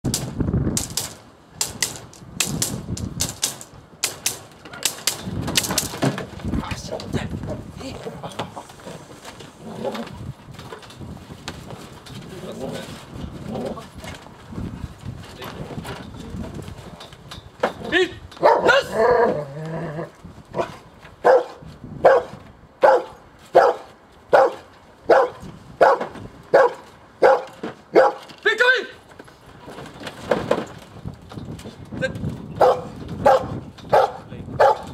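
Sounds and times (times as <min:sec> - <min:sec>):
sharp clacking knocks: 0:00.0 - 0:07.1
dog barking: 0:18.4 - 0:18.9, 0:20.6 - 0:28.2, 0:32.6 - 0:34.9.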